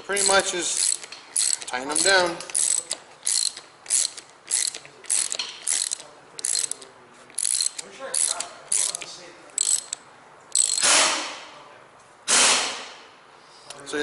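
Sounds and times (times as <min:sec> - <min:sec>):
hand ratchet clicking: 0:00.0 - 0:10.9.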